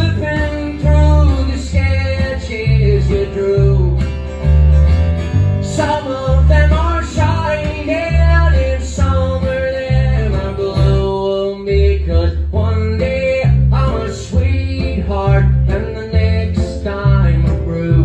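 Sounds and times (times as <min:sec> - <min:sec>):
plucked upright bass: 0:00.0 - 0:18.0
strummed acoustic guitar: 0:00.0 - 0:18.0
person singing: 0:05.6 - 0:18.0.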